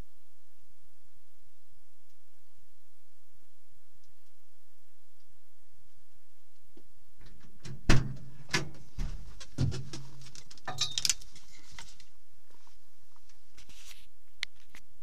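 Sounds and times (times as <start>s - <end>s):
knocks and rustling in seat: 7.4s - 10.2s.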